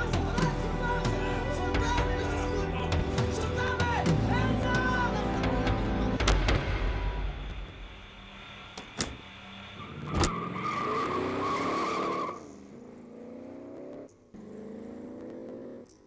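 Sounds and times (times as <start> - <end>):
car engine revving: 8.2 - 15.8.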